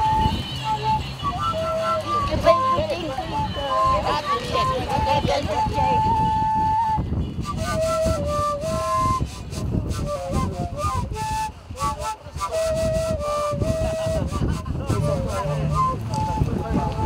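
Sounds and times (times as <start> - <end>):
wooden flute melody: 0.0 - 17.0.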